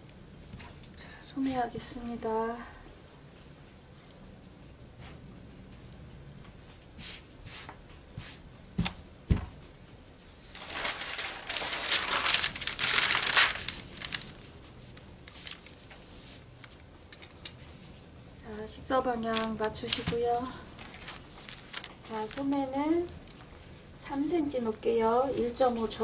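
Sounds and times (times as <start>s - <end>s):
paper rustling and crinkling: 10.4s - 18.0s, 19.2s - 23.5s.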